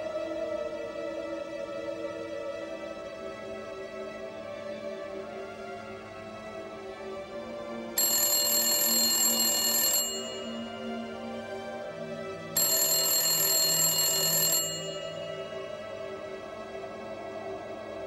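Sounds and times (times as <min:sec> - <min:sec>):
soft ambient music: 0:00.0 - 0:18.0
telephone ringing: 0:08.0 - 0:11.1, 0:12.6 - 0:15.9.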